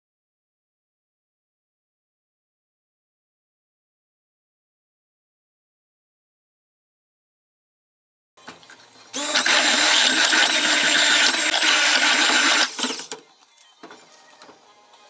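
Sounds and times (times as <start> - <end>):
stick blender running: 9.1 - 13.2.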